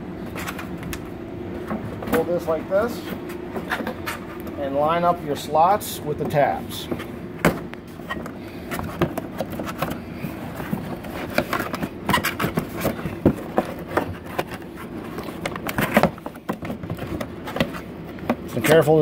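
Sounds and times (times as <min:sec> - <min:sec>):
cardboard creaking and crackling: 0:06.1 - 0:19.0.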